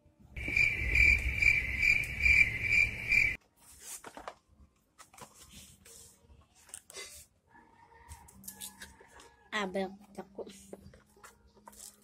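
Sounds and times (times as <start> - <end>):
insect chirping trill: 0.4 - 3.4.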